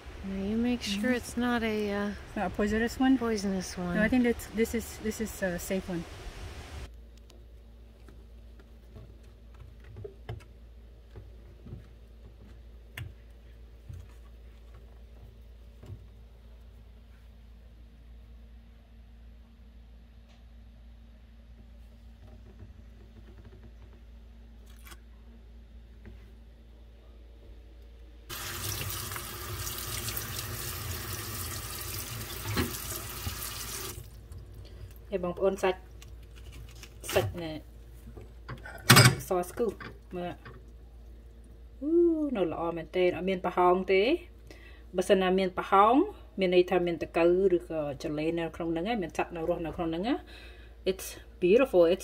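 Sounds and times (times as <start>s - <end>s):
low steady hum: 0.0s - 52.0s
water running into a sink: 28.3s - 34.2s.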